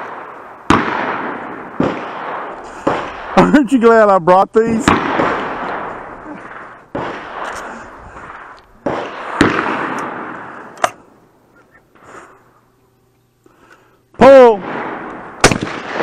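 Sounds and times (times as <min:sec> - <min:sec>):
sharp crack: 0:00.0 - 0:11.1, 0:14.2 - 0:16.0
shotgun shots echoing: 0:00.0 - 0:11.1, 0:14.3 - 0:16.0.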